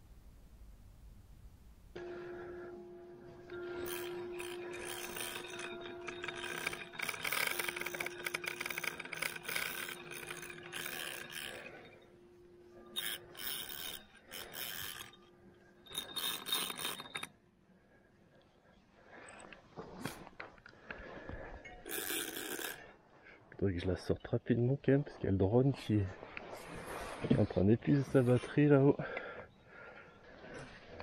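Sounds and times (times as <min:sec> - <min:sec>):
steady hum: 0:00.0 - 0:17.3
fishing reel whirring: 0:02.0 - 0:17.3, 0:21.8 - 0:22.9.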